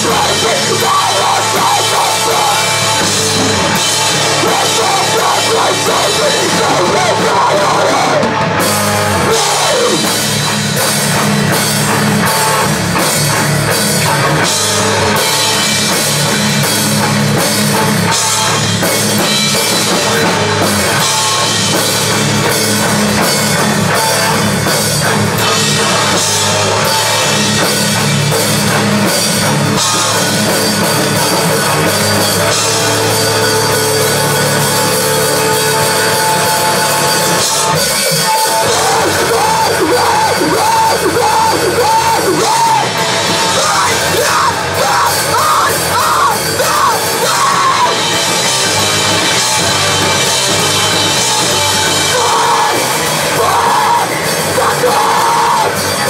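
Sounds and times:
rock band playing live: 0.0s - 56.0s.

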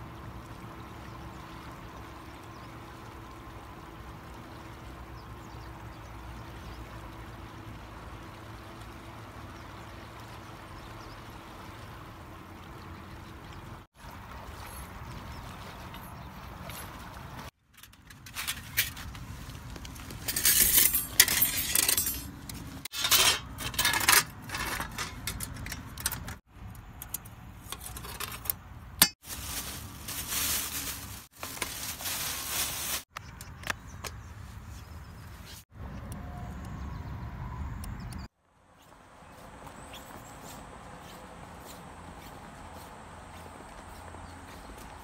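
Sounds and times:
metal camping gear clinking and rattling: 17.6s - 26.4s, 27.1s - 33.0s
folding table unfolded on stones: 17.8s - 26.4s, 27.6s - 28.6s.

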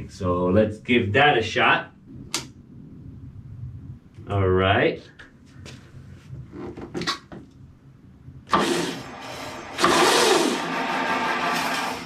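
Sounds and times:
electric motor spinning a wheel: 8.6s - 12.0s.

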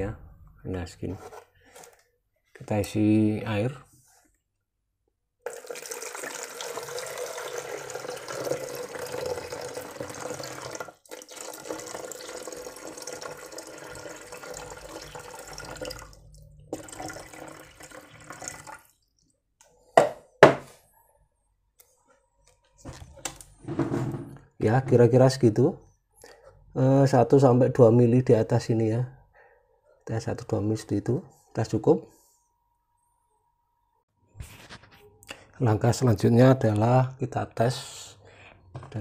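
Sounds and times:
water pouring into plastic tub: 5.5s - 19.0s.

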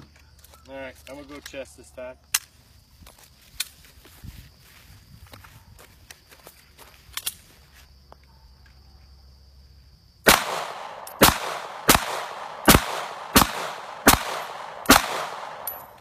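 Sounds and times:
pistol shots with echo: 10.3s - 16.0s.

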